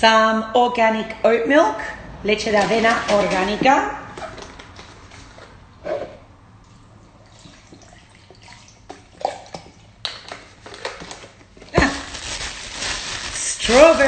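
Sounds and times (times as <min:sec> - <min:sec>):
plastic bag rustling: 0:02.5 - 0:05.6, 0:10.4 - 0:14.0.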